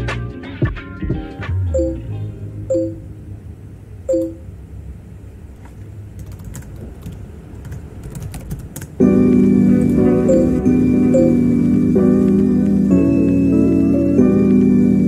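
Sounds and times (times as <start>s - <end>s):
lo-fi music track: 0.0s - 3.2s, 9.0s - 15.0s
soft chime: 1.8s - 2.1s
keyboard and mouse clicks: 5.6s - 9.0s.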